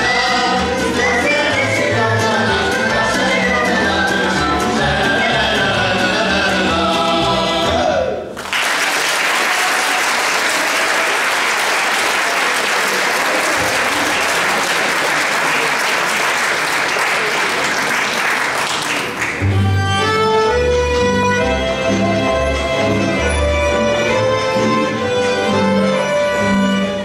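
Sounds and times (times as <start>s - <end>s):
men's folk vocal group with band: 0.0s - 8.2s
audience applause: 8.4s - 19.6s.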